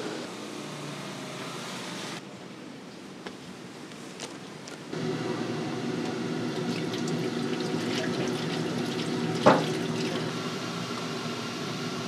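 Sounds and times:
oil pouring into deep fryer: 6.5 - 10.3.

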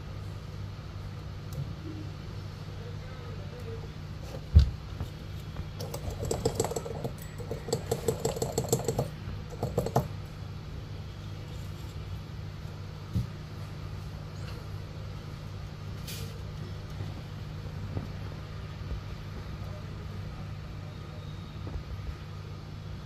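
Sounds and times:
steady low hum: 0.0 - 23.0
rapid light clicking and tapping: 5.7 - 10.2.

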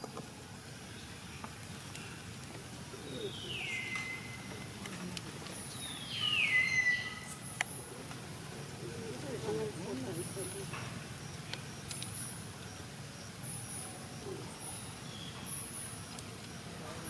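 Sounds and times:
steady outdoor background: 0.0 - 17.0.

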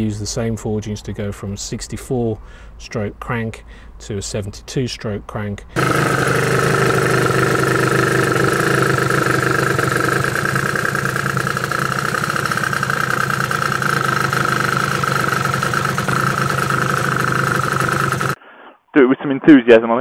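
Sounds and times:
scooter engine idling: 5.8 - 18.4.

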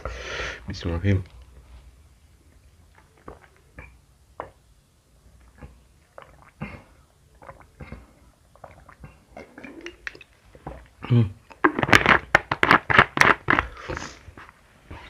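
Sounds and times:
person gulping water: 2.8 - 4.6, 5.3 - 14.2.

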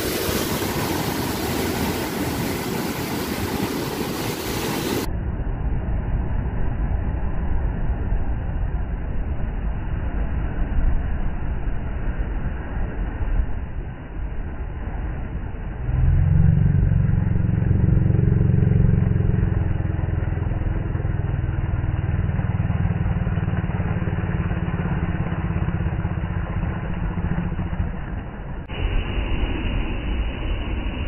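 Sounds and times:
surf breaking over rocks: 0.0 - 5.1.

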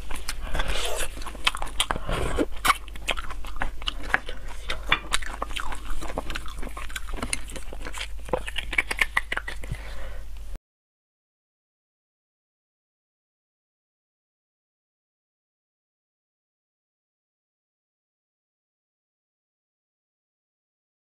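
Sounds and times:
sucking and chewing marrow: 0.0 - 10.5.

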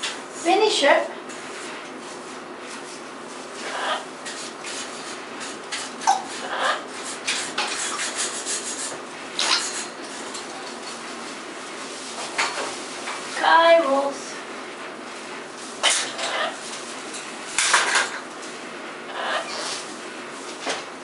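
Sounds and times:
scrubbing and scraping strokes: 1.4 - 13.0.

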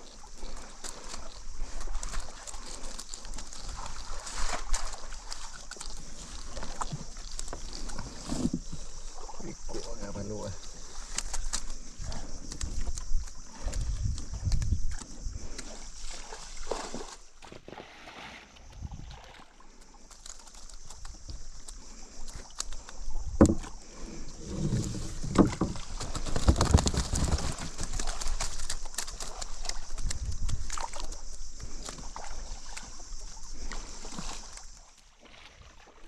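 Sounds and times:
water splashing and sloshing: 0.0 - 36.0.

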